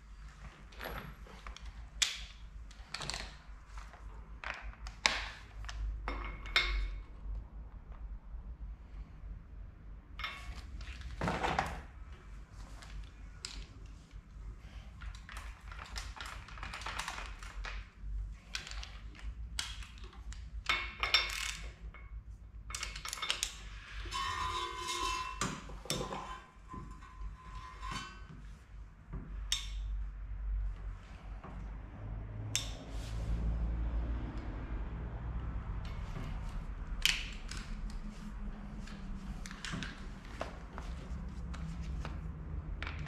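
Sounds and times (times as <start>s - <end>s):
ringing metal ping: 24.1s - 25.7s.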